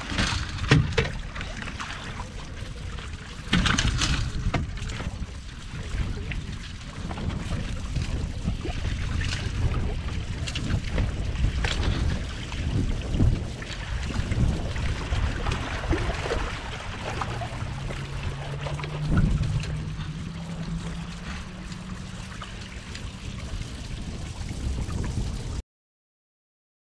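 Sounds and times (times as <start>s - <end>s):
water sloshing against hulls: 0.0s - 25.6s
wind on microphone: 0.0s - 25.6s
low steady hum: 14.0s - 25.5s.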